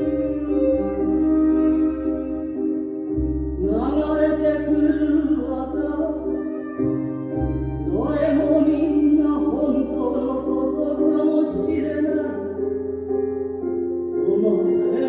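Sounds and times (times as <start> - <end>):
instrumental accompaniment with bass: 0.0 - 15.0
woman singing: 3.6 - 7.0, 7.8 - 12.7, 14.2 - 15.0.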